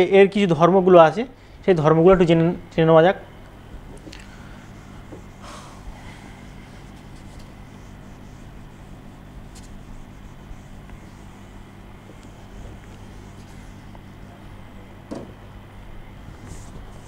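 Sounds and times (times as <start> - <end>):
low room hum: 0.0 - 17.0
duster wiping whiteboard: 3.7 - 14.9, 16.2 - 17.0.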